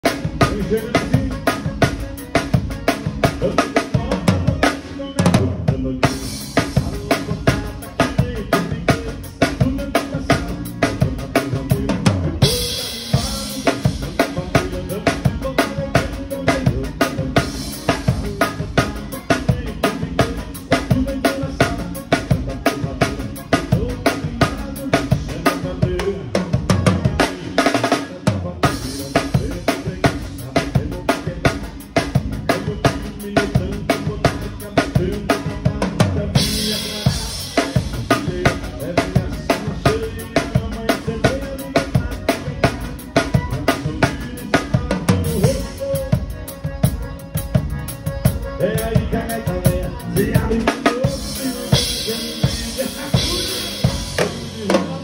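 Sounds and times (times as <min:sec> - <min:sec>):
band backing track: 0:00.0 - 0:55.0
drum kit playing: 0:00.0 - 0:55.0.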